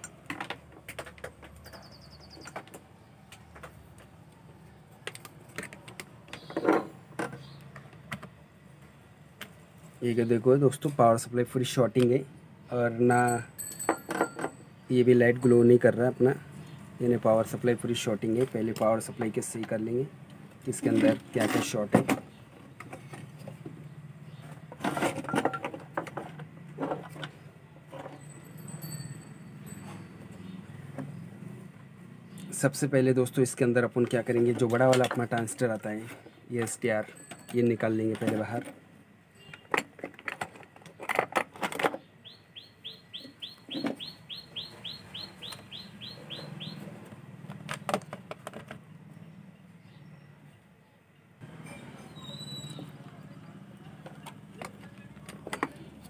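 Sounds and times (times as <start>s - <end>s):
hands handling wires clicking: 0.0s - 8.4s.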